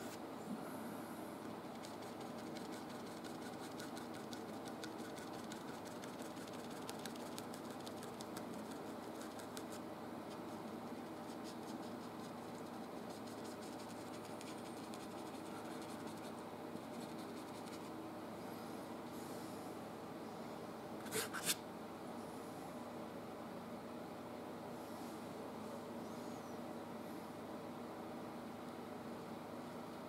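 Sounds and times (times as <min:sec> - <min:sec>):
brush scratching on canvas: 0:01.6 - 0:17.9, 0:21.1 - 0:21.6.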